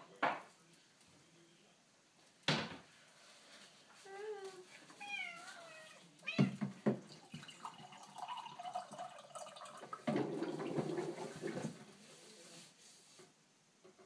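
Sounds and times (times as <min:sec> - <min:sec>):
water gurgling in bottle: 0:07.2 - 0:11.6.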